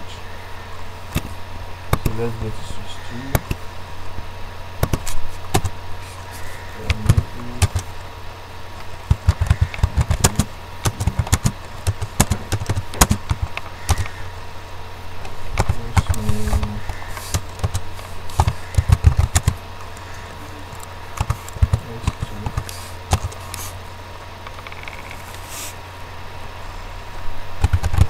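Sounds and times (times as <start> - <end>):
steady low hum: 0.0 - 28.0
keyboard typing: 6.8 - 7.9, 9.1 - 14.2, 15.6 - 23.4, 27.6 - 28.0.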